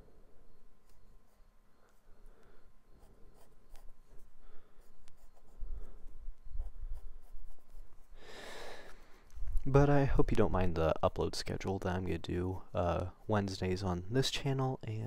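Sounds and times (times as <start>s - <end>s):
pencil scratching on paper: 2.9s - 8.1s.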